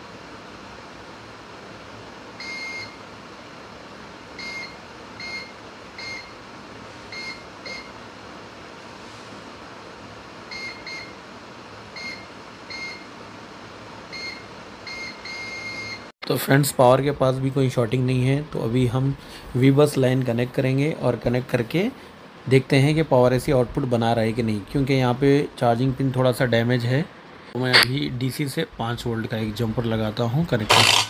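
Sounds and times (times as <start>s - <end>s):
multimeter short high beeps: 14.2s - 16.0s
steady background hiss: 16.2s - 30.9s.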